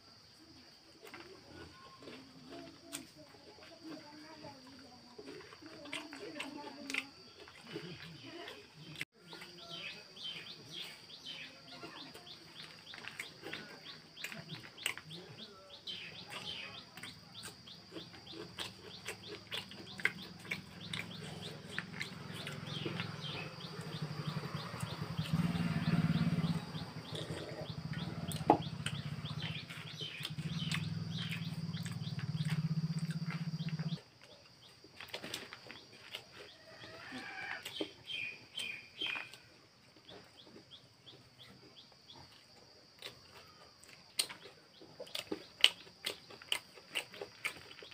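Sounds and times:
crunching puffed rice: 1.0s - 11.0s, 12.0s - 40.7s, 42.1s - 47.9s
birds chirping: 6.4s - 42.3s.

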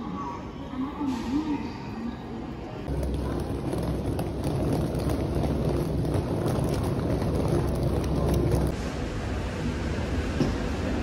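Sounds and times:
suitcase wheels rolling on tiles: 2.9s - 8.8s.

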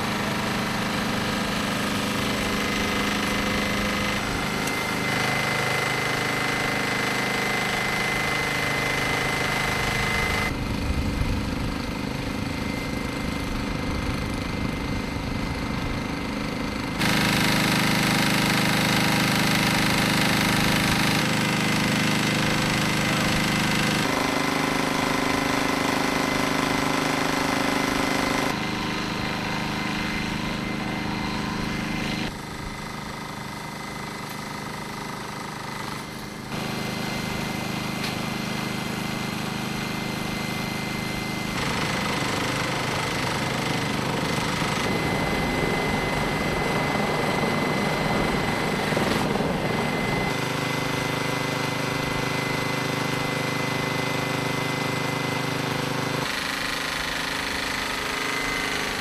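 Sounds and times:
pressure washer engines running: 0.0s - 59.0s.

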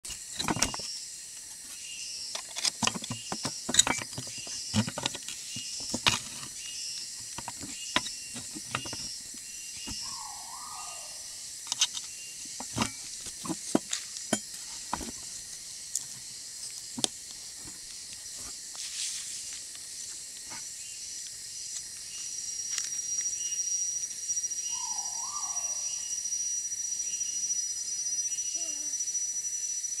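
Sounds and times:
high pulsing insect chorus: 0.0s - 30.0s
falling calls: 9.9s - 11.4s.

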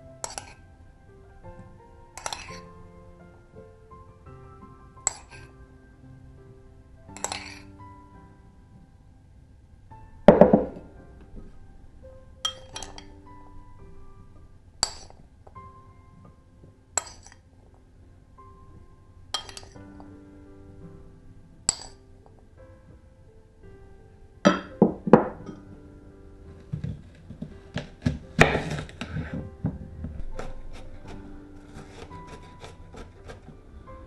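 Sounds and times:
soft piano music: 0.0s - 34.0s
metal spoon clinking on bowl: 2.2s - 2.6s, 7.2s - 7.6s, 12.5s - 13.1s, 17.0s - 17.4s, 19.4s - 19.8s
loud knocks: 10.3s - 11.0s
knife chopping on wooden board: 27.8s - 29.2s, 31.7s - 33.5s.

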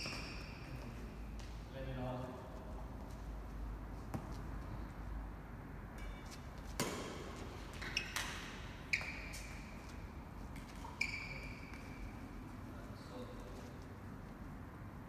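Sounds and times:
rackets hitting shuttlecock: 0.0s - 0.8s, 6.0s - 12.2s
shoes squeaking on court floor: 0.0s - 1.7s, 6.0s - 14.0s.

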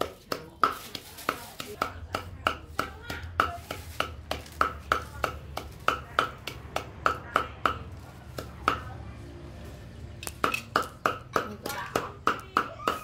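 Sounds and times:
cleaver chopping on wooden block: 10.2s - 13.0s.

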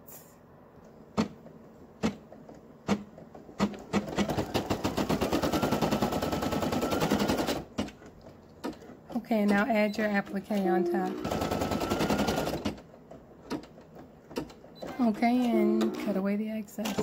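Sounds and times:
embroidery machine stitching: 2.0s - 8.0s, 8.6s - 16.2s.

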